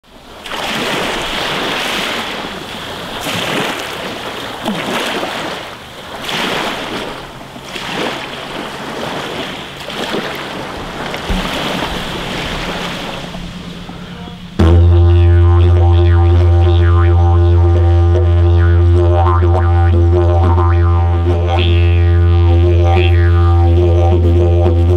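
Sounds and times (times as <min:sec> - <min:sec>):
waves washing onto beach: 0:00.0 - 0:14.6
deep didgeridoo drone: 0:10.5 - 0:24.9.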